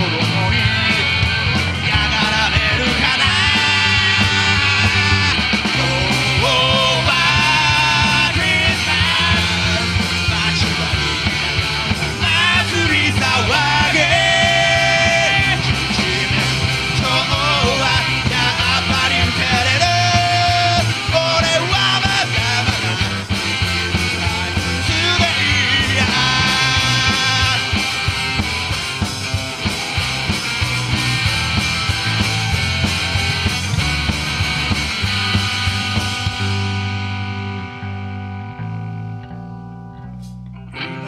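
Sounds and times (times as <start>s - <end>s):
person singing lead vocal: 0.0s - 27.8s
drum kit: 0.0s - 38.8s, 40.1s - 40.5s
electric bass: 0.0s - 41.0s
electric guitar: 0.0s - 41.0s.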